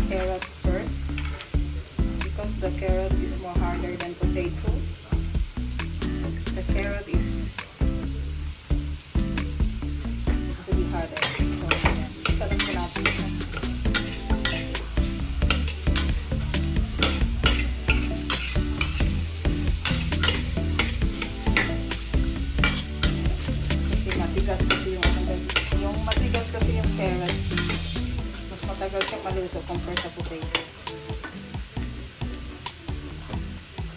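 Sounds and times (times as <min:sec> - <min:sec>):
vegetables sizzling in hot oil: 0:00.0 - 0:33.9
metal spatula scraping wok: 0:11.2 - 0:29.2.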